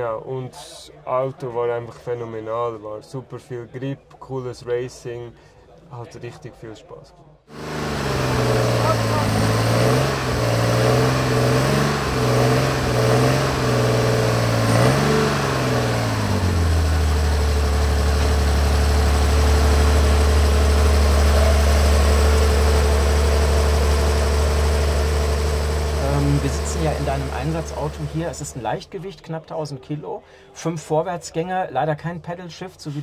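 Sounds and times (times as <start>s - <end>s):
racing engine idling unevenly: 7.5s - 28.8s.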